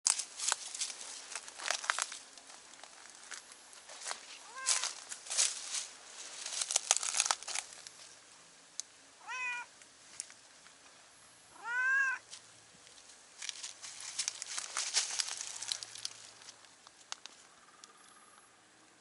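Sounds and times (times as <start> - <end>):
dry leaves and twigs rustling: 0.0 - 11.0, 11.6 - 18.0
cat meowing: 4.4 - 4.9, 9.2 - 9.7, 11.5 - 12.2.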